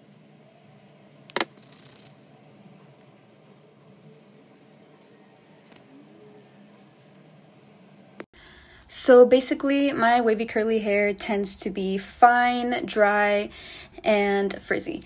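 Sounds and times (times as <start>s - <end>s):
fingers rubbing through hair: 1.4s - 8.2s
hands rubbing together: 1.5s - 8.1s.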